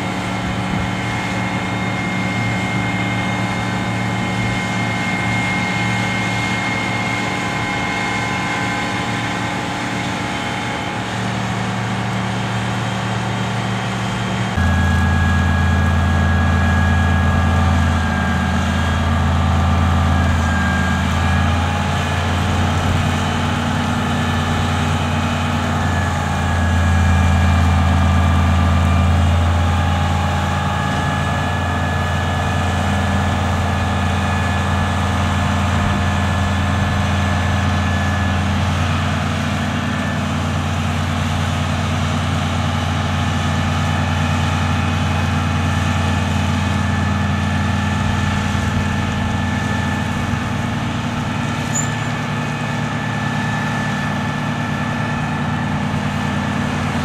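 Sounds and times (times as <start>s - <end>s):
diesel engine idling: 0.0s - 57.0s
faint steady whine: 14.5s - 22.3s.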